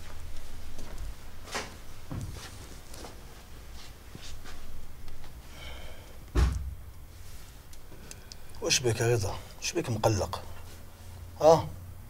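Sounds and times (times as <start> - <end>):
soft footsteps and shuffling: 0.0 - 11.4
heavy low thump: 6.3 - 6.9.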